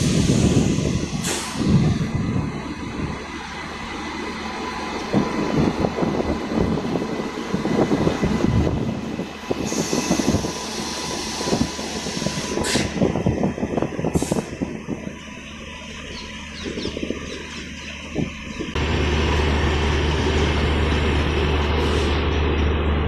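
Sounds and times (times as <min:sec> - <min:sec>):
train air hiss: 0:00.0 - 0:02.1, 0:09.5 - 0:13.1, 0:14.0 - 0:14.6, 0:21.7 - 0:22.3.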